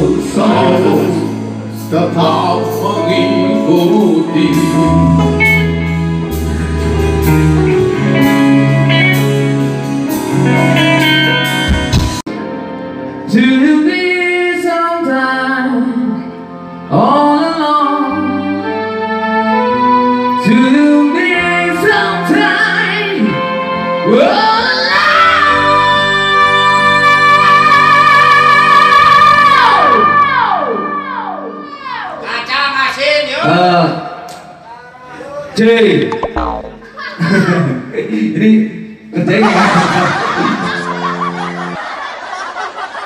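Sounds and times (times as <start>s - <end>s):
electric guitar: 4.4s - 12.2s
keyboards: 35.9s - 37.6s
electric bass: 36.0s - 36.9s.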